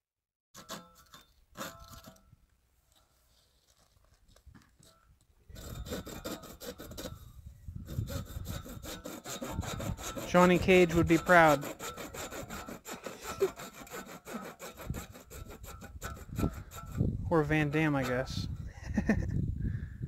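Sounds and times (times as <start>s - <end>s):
hand saw cutting plastic conduit: 0.6s - 2.2s, 5.5s - 7.2s, 7.9s - 18.3s.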